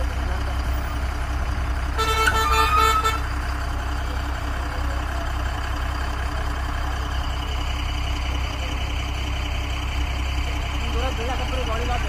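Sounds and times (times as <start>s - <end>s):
engine humming: 0.0s - 12.0s
vehicle horn: 1.9s - 3.3s.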